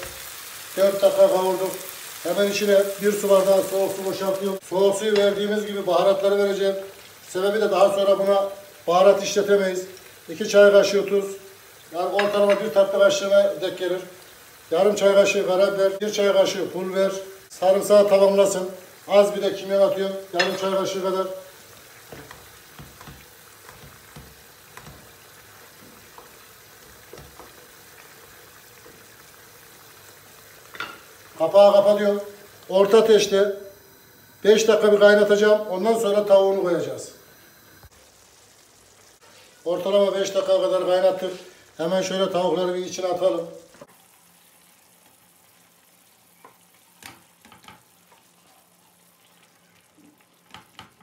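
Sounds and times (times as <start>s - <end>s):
sauce sizzling: 0.0s - 51.0s
wooden spoon knocking a pan: 12.1s - 12.7s, 20.4s - 20.7s, 22.1s - 25.2s, 25.8s - 27.6s.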